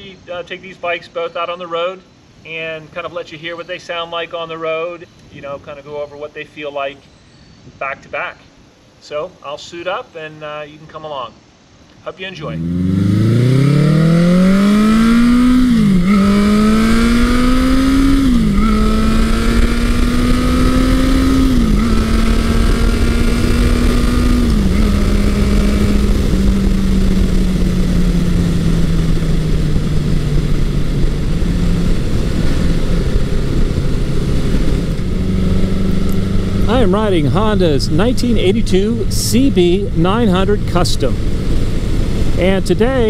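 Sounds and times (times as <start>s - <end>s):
motorcycle engine accelerating: 12.4s - 43.0s.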